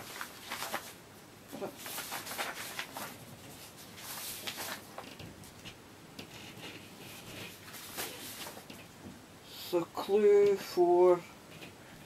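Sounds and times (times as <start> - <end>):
paper sheets rustling: 0.0 - 8.9.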